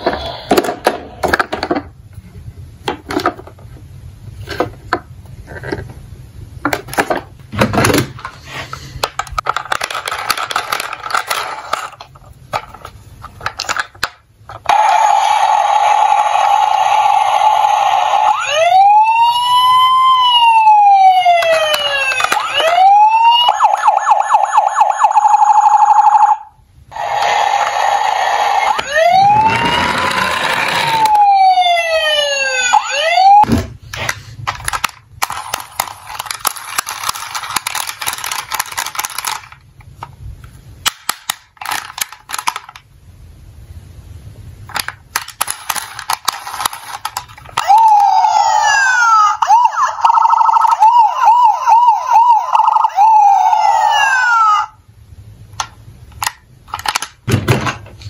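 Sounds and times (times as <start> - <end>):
plastic toy cars clattering: 0.0 - 1.9, 2.9 - 3.7, 6.6 - 14.8, 21.4 - 22.9, 29.3 - 31.2, 33.9 - 40.2, 40.8 - 42.9, 44.7 - 51.5, 55.6 - 58.0
toy siren wailing: 14.7 - 33.5, 47.6 - 54.8.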